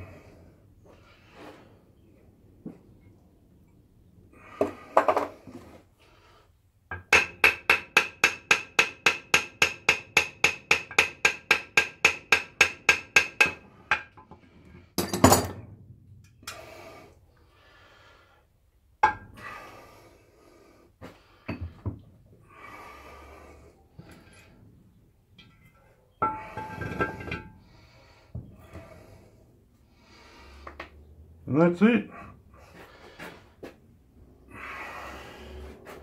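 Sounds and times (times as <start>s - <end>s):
hammer striking metal: 7.0s - 14.1s.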